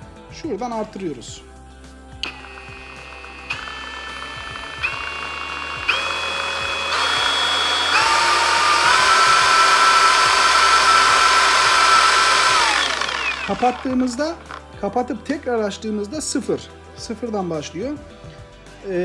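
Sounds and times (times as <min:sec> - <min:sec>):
speed button click: 0:02.2 - 0:05.0
polisher motor whine: 0:02.2 - 0:14.7.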